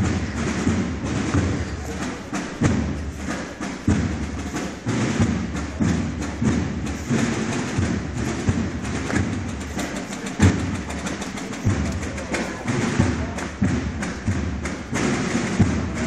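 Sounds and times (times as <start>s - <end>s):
slow heavy drumbeats: 0.0s - 16.0s.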